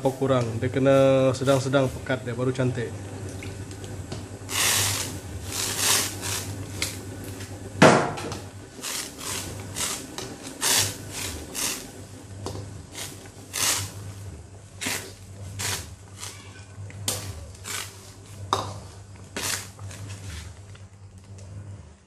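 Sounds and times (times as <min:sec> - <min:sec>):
steady low hum: 0:00.0 - 0:22.0
ladle scraping in a wok: 0:13.0 - 0:14.0.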